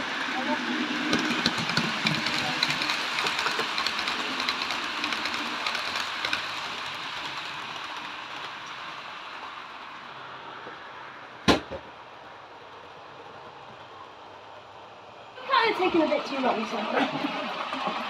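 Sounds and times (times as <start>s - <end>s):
model train wheels rattling on rails: 0.0s - 10.2s.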